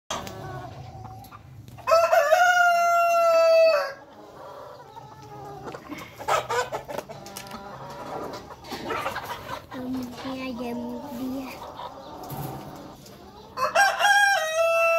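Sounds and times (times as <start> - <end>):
hens clucking: 0.1 - 14.9
rooster crowing: 1.9 - 4.0, 13.6 - 14.9.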